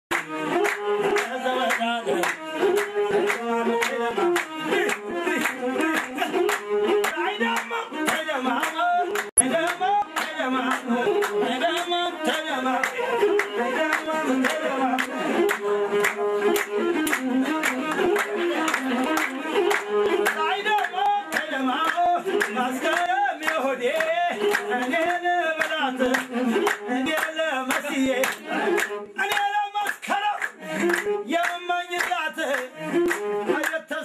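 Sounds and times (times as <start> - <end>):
crowd clapping in time: 0.1 - 34.0
person singing: 0.1 - 34.0.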